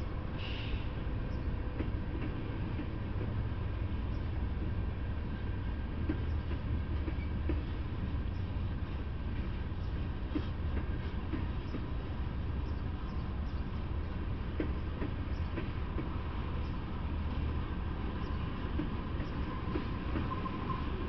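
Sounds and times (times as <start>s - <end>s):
freight train rumbling past: 0.0s - 21.0s
wheels clicking on rails: 5.9s - 21.0s.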